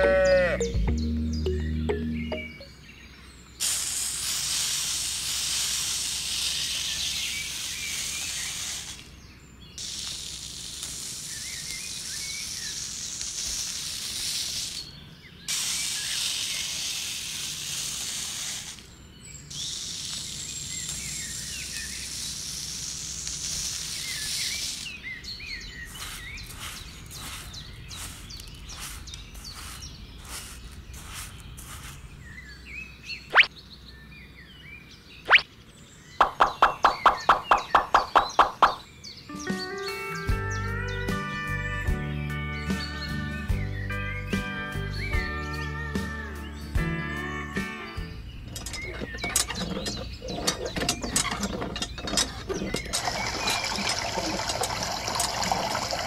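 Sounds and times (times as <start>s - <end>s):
sand pouring hiss: 3.6s - 32.5s
metal tool scraping sand: 3.7s - 9.1s, 19.6s - 32.1s, 48.4s - 54.6s.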